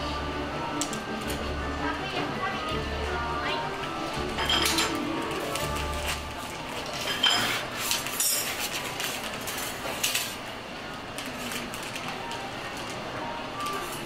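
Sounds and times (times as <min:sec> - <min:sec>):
utensils clinking on work surface: 0:04.4 - 0:05.0, 0:06.8 - 0:10.4.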